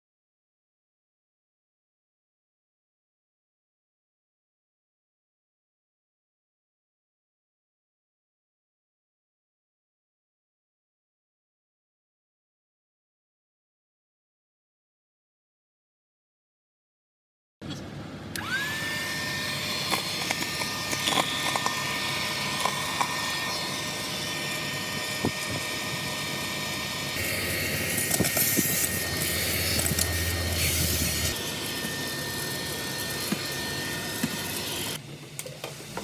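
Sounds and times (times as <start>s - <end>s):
handheld vacuum motor whine: 18.3s - 36.0s
vacuum sucking crumbs: 18.4s - 35.0s.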